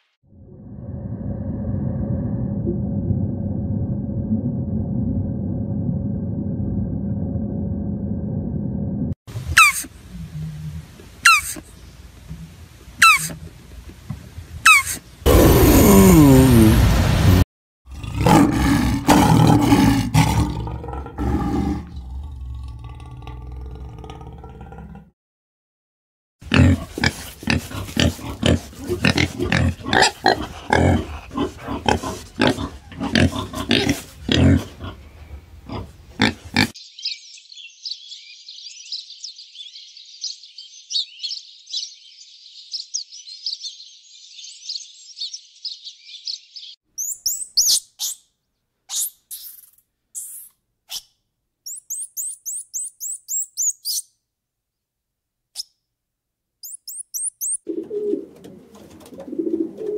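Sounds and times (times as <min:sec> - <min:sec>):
wild boar grunting and squealing: 0:26.4 - 0:36.8
sparrows chirping: 0:36.8 - 0:48.3, 0:51.7 - 0:54.1, 0:56.6 - 0:57.6
sharp very high chirps: 0:47.0 - 0:48.2, 0:51.7 - 0:54.1, 0:56.6 - 0:57.6.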